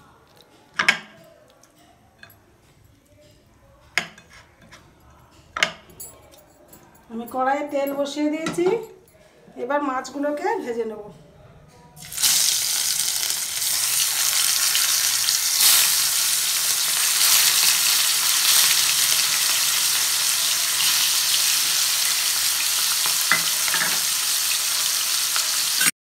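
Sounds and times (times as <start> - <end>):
fish sizzling in hot oil: 12.0 - 25.9.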